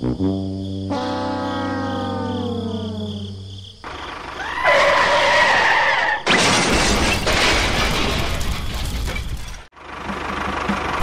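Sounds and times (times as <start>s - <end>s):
sliding trombone tune: 0.0s - 3.4s
loud shattering crash: 6.2s - 9.7s.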